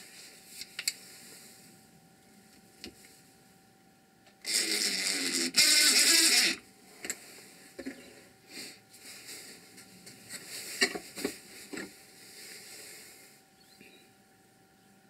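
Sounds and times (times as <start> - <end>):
power driver driving screw: 4.5 - 6.6.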